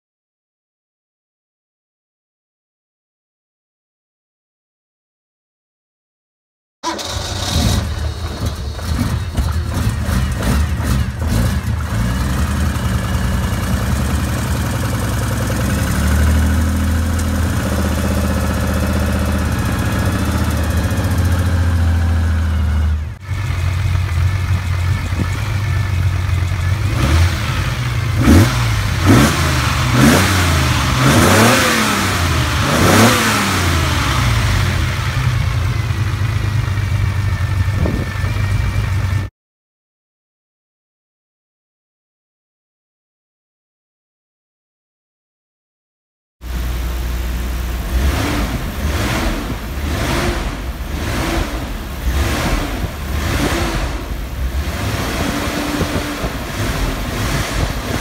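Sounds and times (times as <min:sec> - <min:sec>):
car engine revving: 0:06.8 - 0:39.2, 0:46.5 - 0:58.0
car engine idling: 0:06.8 - 0:39.3, 0:46.5 - 0:58.0.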